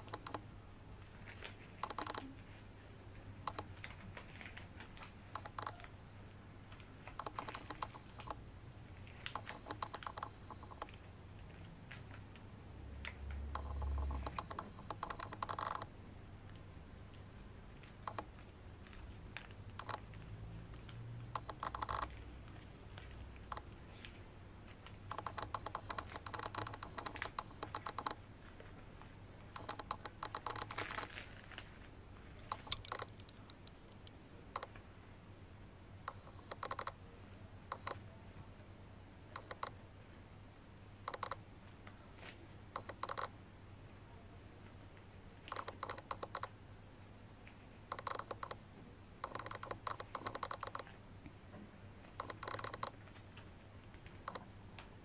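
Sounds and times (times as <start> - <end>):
faint steady hum: 0.0 - 55.0
scratchy rustle: 17.1 - 33.5.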